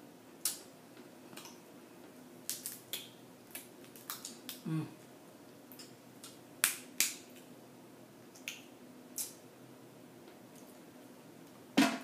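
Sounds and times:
crab shells cracking: 2.5s - 4.6s.

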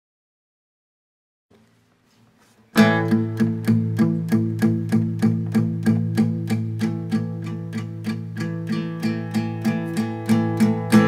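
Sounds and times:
strummed string instrument: 2.8s - 11.0s.

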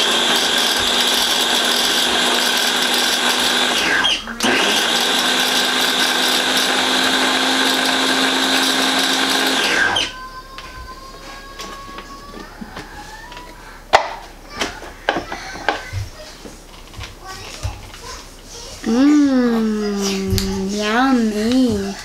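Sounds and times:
blender motor whirring: 0.0s - 10.2s.

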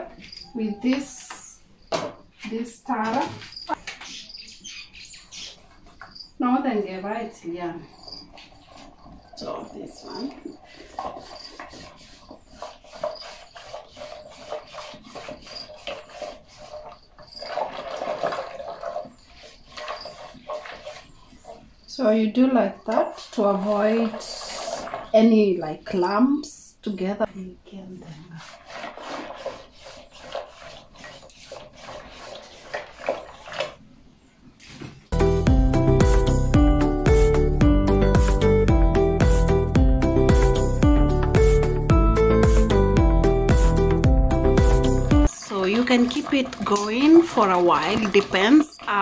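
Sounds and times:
wooden stick scraping metal pot: 7.9s - 21.9s, 22.9s - 26.0s, 28.1s - 33.8s, 44.6s - 49.0s
loud music: 35.2s - 45.3s.

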